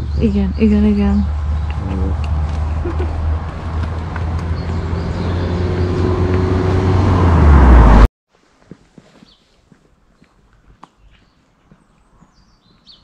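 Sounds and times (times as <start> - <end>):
car engine and road noise: 0.0 - 8.1.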